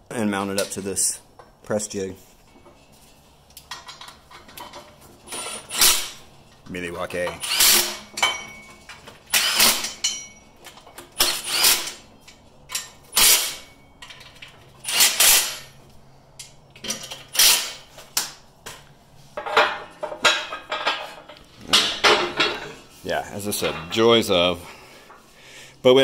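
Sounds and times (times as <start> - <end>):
cordless power tool driving bolts: 5.3 - 6.2, 7.4 - 8.1, 9.2 - 10.0, 11.0 - 12.0, 13.1 - 13.6, 14.8 - 15.7, 17.1 - 17.8.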